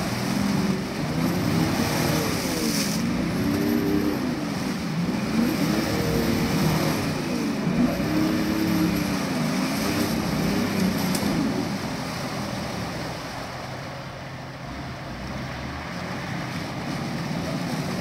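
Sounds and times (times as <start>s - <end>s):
engine revving: 0.0s - 13.5s.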